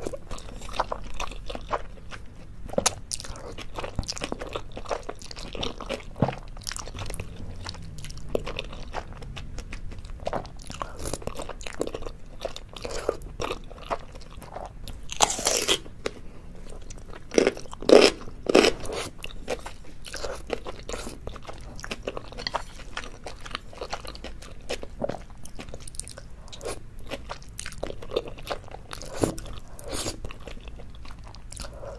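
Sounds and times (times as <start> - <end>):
chewing and lip smacks: 18.6 - 31.9.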